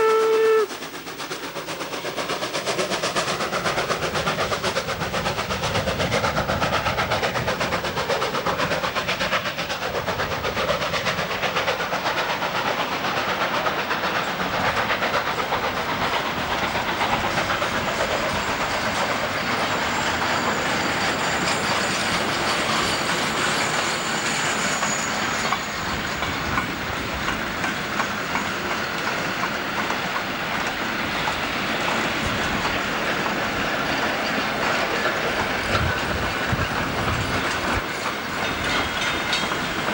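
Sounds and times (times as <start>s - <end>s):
high squeal: 18.1s - 26.2s
wheels clattering over rail joints: 24.8s - 39.9s.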